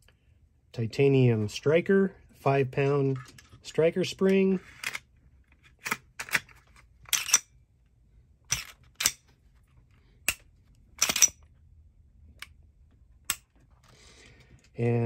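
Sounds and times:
pistol slide racking: 5.8s - 7.5s, 8.5s - 9.2s, 10.3s - 11.4s.

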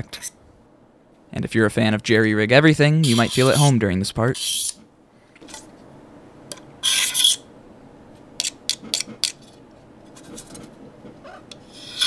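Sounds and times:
knife blade scraping metal: 3.0s - 3.7s, 4.4s - 4.8s, 6.8s - 7.5s, 11.5s - 12.0s.

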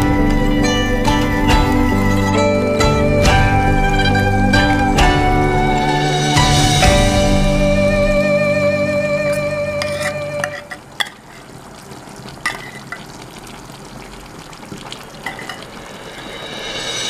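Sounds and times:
stew sizzling and bubbling: 0.0s - 17.0s
metal spoon scraping tin can: 9.8s - 11.5s.

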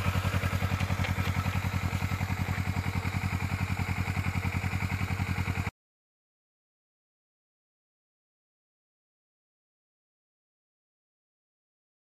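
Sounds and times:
motorcycle engine idling: 0.0s - 5.7s.

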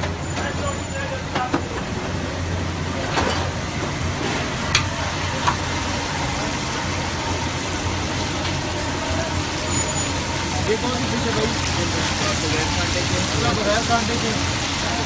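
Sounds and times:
gas burner low hum: 0.0s - 15.0s
fish sizzling in hot oil: 3.5s - 15.0s.

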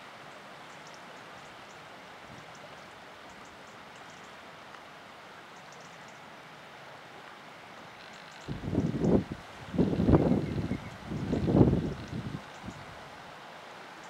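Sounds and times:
wind over choppy water: 8.4s - 13.3s.

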